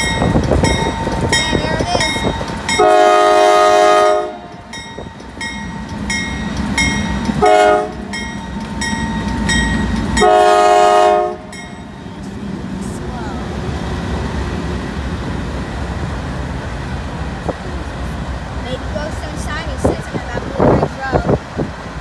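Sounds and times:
locomotive air horn blasts: 2.8s - 4.5s, 7.4s - 8.1s, 10.2s - 11.5s.

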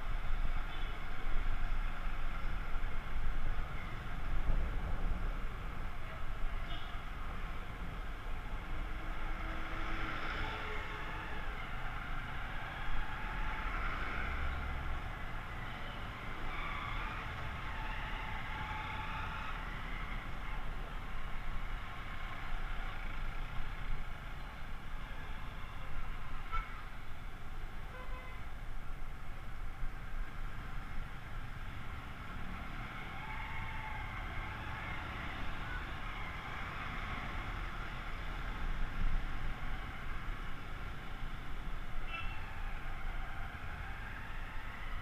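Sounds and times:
traffic of motorbikes and cars: 0.0s - 45.0s.

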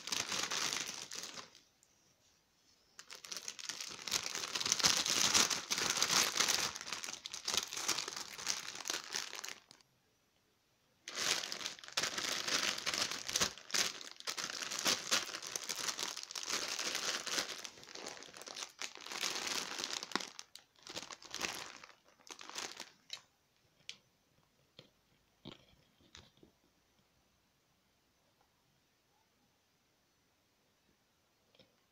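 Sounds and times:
plastic pouches crinkling: 0.0s - 1.7s, 3.0s - 9.8s, 11.0s - 23.3s.

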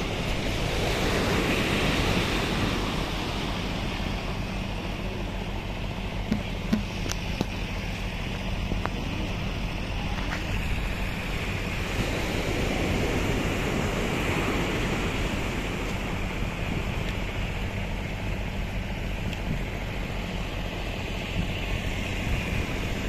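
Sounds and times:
sea surf breaking: 0.0s - 23.0s
wind on microphone: 21.2s - 23.0s.

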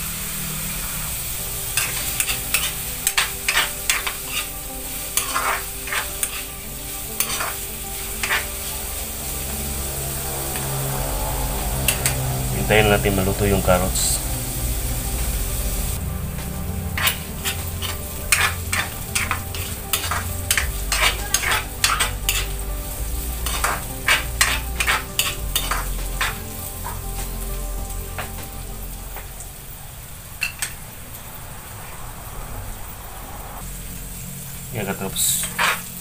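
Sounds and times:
carrots sizzling in hot oil: 0.0s - 31.8s, 33.6s - 36.0s
spatula scraping a pan: 1.7s - 8.8s, 16.8s - 22.6s, 23.4s - 27.0s, 35.4s - 36.0s.

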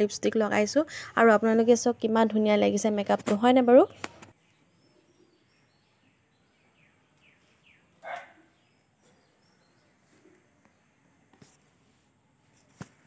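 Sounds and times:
faint bird chirps: 3.8s - 11.2s.

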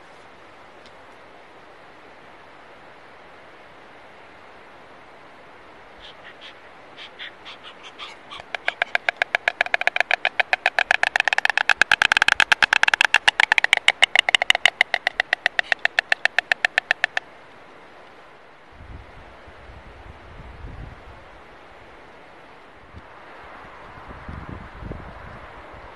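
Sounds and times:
storks bill-clattering: 6.0s - 17.2s.

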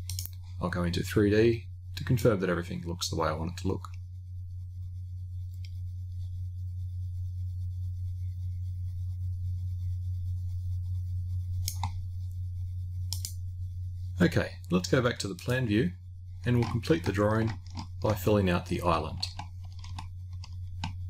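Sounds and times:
computer mouse clicks: 0.0s - 0.4s, 11.6s - 12.0s, 13.1s - 13.4s, 16.5s - 18.2s, 19.2s - 21.0s
steady low hum: 0.0s - 21.0s.

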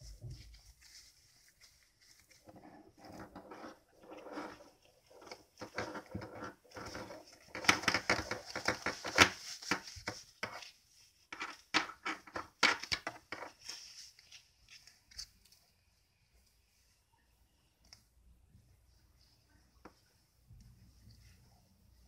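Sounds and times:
glove rubbing and rustling: 0.0s - 17.1s.

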